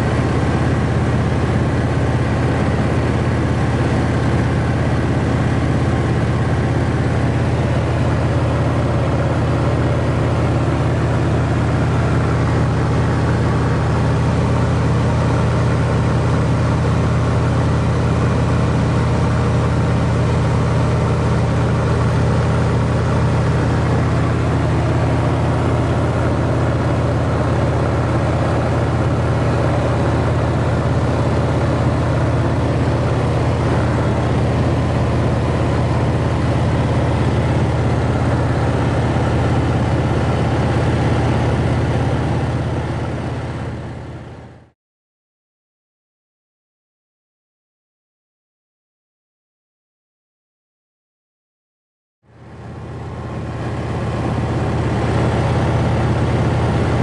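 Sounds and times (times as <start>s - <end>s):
aircraft engine droning in cabin: 0.0s - 44.8s, 52.3s - 57.0s.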